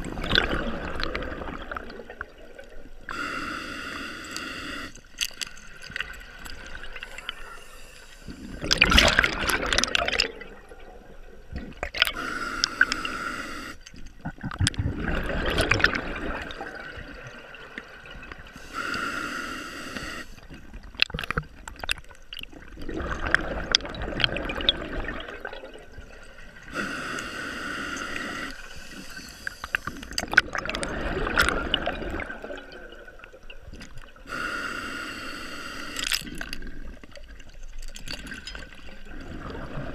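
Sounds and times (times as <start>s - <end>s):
exhaled bubbles gurgling: 0.0s - 3.3s, 5.8s - 34.4s, 36.0s - 39.9s
diver breathing through regulator: 3.1s - 5.0s, 12.1s - 13.9s, 18.6s - 20.4s, 26.7s - 30.1s, 34.3s - 36.4s.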